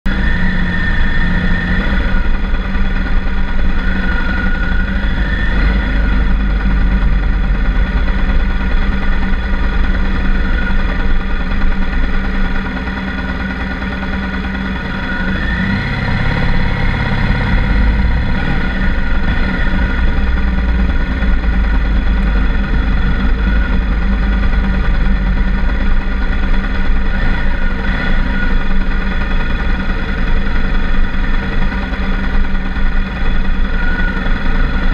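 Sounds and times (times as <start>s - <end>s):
motorcycle engine running: 0.1s - 34.9s.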